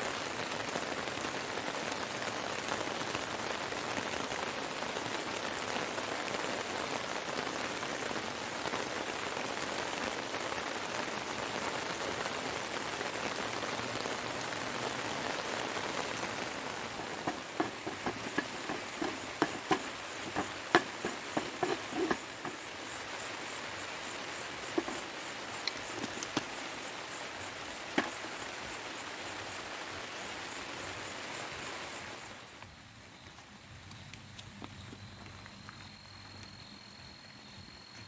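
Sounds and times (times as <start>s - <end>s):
steady rain falling: 0.0s - 38.0s
sharp taps: 17.0s - 22.6s.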